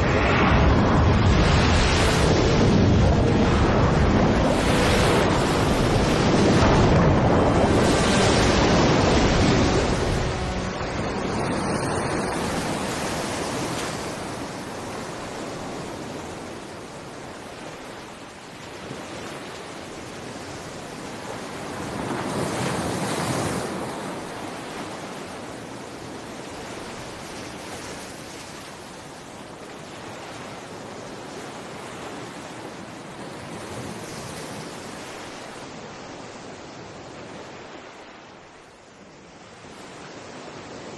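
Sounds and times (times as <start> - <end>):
ocean surf washing in: 0.0 - 25.6.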